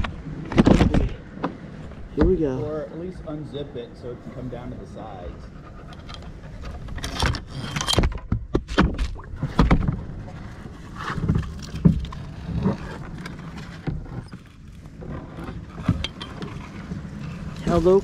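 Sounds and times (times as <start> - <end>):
knocks and bumps in kayak: 0.0 - 2.4, 6.5 - 17.4
branches rustling: 9.0 - 18.0.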